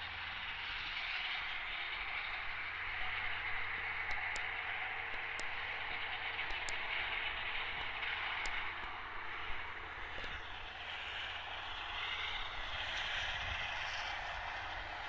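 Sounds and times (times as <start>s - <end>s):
distant tractor mowing: 0.0s - 15.0s
faint ticks: 3.9s - 12.2s.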